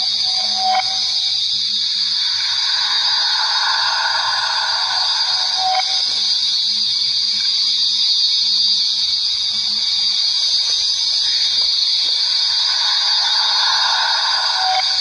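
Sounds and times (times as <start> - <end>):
high-pitched ambient drone: 0.0 - 7.6, 10.5 - 15.0.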